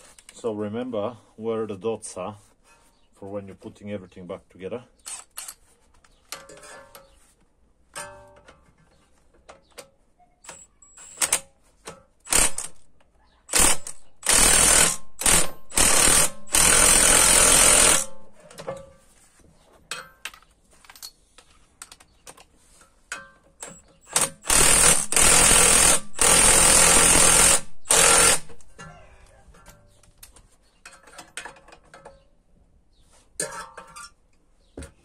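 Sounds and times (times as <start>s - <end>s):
impact wrench hammering: 13.5s - 18.3s, 23.6s - 28.7s.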